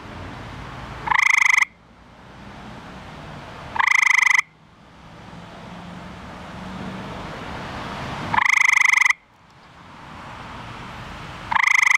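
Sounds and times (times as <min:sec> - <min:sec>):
tree frog trilling: 0:01.0 - 0:01.8, 0:03.7 - 0:04.6, 0:08.3 - 0:09.2, 0:11.5 - 0:11.9.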